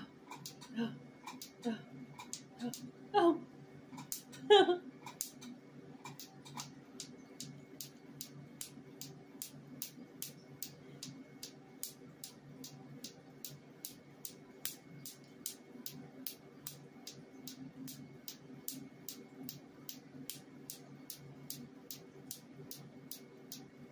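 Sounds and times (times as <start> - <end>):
steady low hum: 0.0 - 23.9
laser firing sharp snaps: 5.1 - 23.7.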